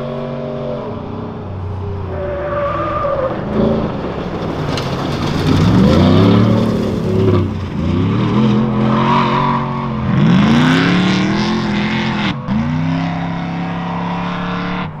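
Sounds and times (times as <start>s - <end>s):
truck engine revving: 0.0s - 15.0s
tyres sliding in loose dirt: 1.9s - 12.0s.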